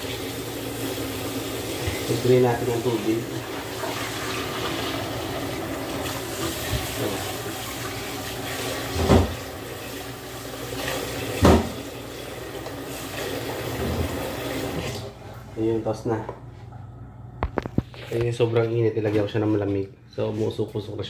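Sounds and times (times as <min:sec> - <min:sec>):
dishes knocking in sink: 0:11.4 - 0:11.8.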